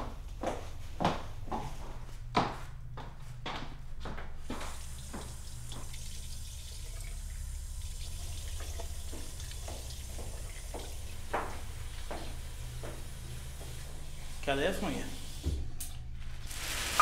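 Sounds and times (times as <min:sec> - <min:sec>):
tap water running into sink: 0:04.7 - 0:12.3.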